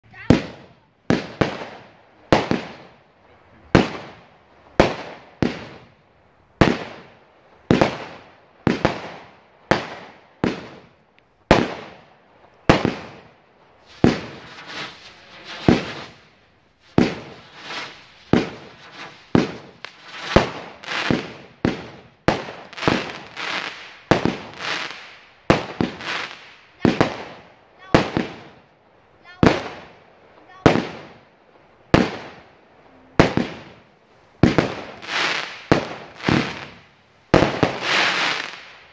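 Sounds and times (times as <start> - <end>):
firework bangs: 0.1 - 3.0, 3.6 - 6.0, 6.6 - 38.9.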